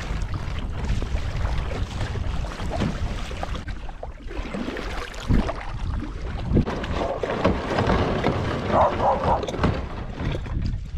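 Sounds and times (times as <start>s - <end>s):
wind buffeting microphone: 0.0s - 3.8s, 5.2s - 10.9s
water splashing and lapping: 0.0s - 10.9s
dull knocks from kayak hull: 6.6s - 10.8s.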